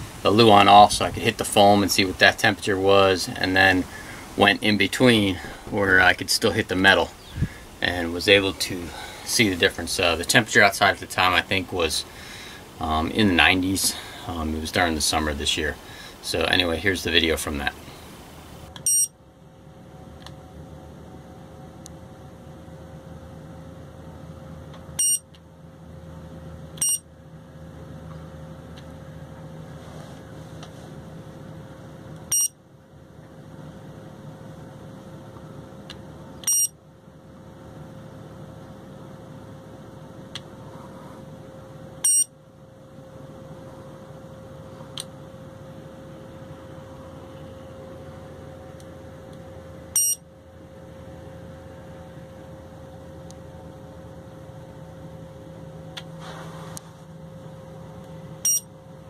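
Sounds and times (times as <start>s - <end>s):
faint constant tone: 0.0s - 59.0s
steady low hum: 0.0s - 59.0s
thermometer short high beeps: 18.8s - 19.1s, 25.0s - 25.3s, 26.8s - 27.0s, 32.3s - 32.6s, 36.4s - 36.8s, 42.0s - 42.3s, 50.0s - 50.2s, 58.4s - 58.7s.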